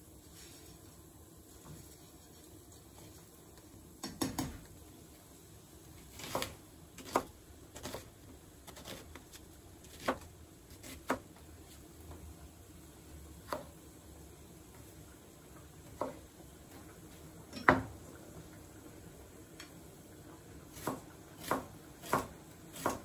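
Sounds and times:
knife chopping on cutting board: 6.1s - 8.1s, 8.7s - 9.3s, 9.9s - 11.3s, 20.8s - 23.0s.

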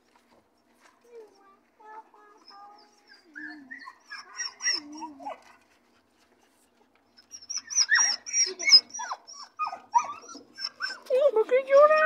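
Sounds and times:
dog whining: 2.5s - 5.5s, 7.2s - 12.0s.

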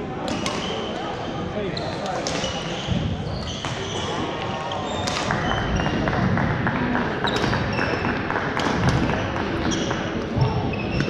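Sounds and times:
murmur of voices: 0.0s - 11.0s
rackets hitting shuttlecocks: 1.9s - 3.0s, 3.6s - 11.0s
sneakers squeaking on wooden floor: 2.6s - 6.3s, 7.2s - 8.2s, 9.2s - 11.0s.

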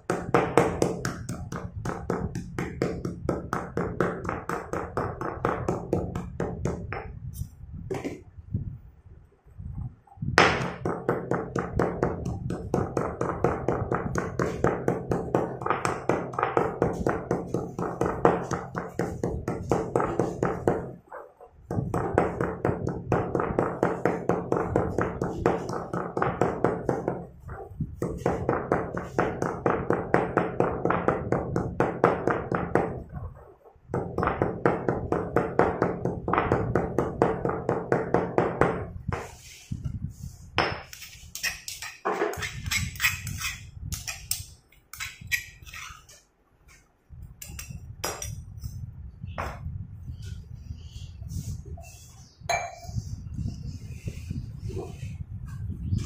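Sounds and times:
stone pestle pounding in mortar: 0.1s - 7.2s, 10.4s - 21.0s, 21.7s - 27.3s, 28.0s - 33.0s, 33.9s - 39.2s.

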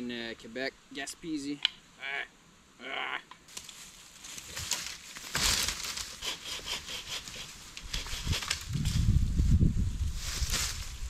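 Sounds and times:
bow saw cutting wood: 6.0s - 8.6s.

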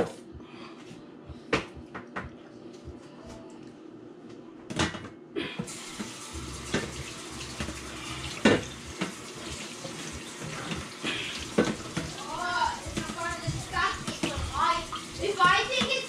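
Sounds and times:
water running into a metal sink: 5.7s - 16.0s.

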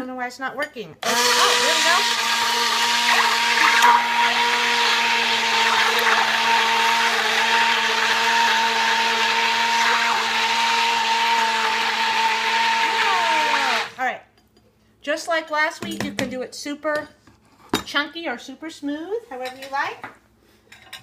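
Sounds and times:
blade churning soup: 1.0s - 14.0s
immersion blender motor running: 1.0s - 14.0s.

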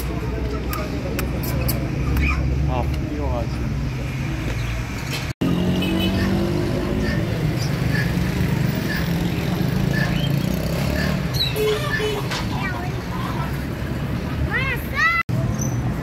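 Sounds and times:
traffic engines running: 0.0s - 16.0s.

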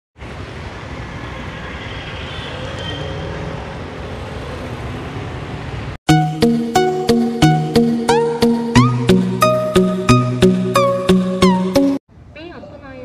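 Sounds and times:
road traffic noise: 0.2s - 6.0s
plucked string music: 6.1s - 12.0s.

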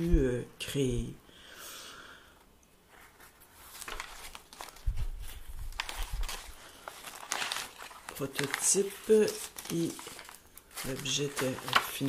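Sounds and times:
paper pages rustling: 2.9s - 12.0s.

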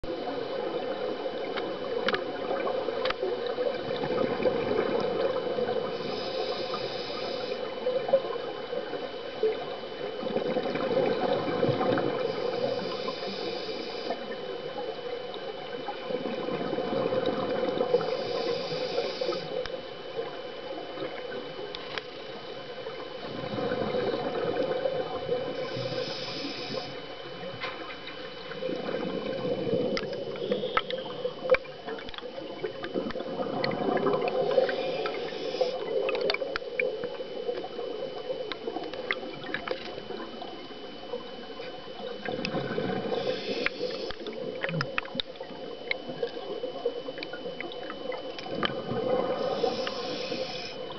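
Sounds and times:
steady hum: 0.0s - 50.9s
regulator hissing inhale: 5.8s - 7.8s, 12.2s - 14.4s, 17.9s - 19.6s, 25.5s - 27.0s, 34.4s - 36.0s, 43.0s - 44.5s, 49.3s - 50.9s
bubbling exhale: 42.3s - 44.8s, 48.7s - 50.9s.

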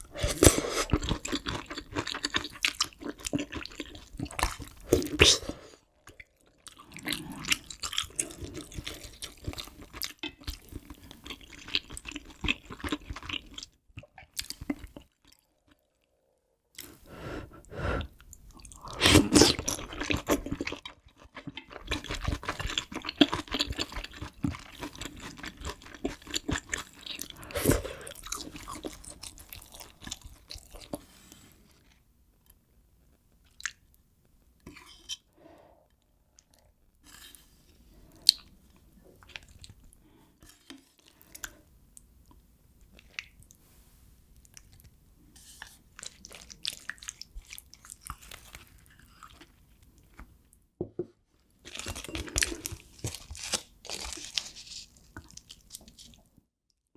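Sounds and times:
wet chewing sounds: 0.1s - 15.9s, 18.2s - 32.0s, 45.6s - 50.3s, 51.7s - 56.3s.

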